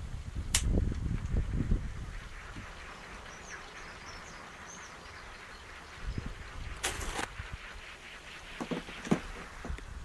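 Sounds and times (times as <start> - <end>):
faint outdoor hiss: 0.0 - 10.0
wind gusting on microphone: 0.0 - 10.0
sharp click: 0.5 - 0.8
high bird chirps: 1.9 - 6.8.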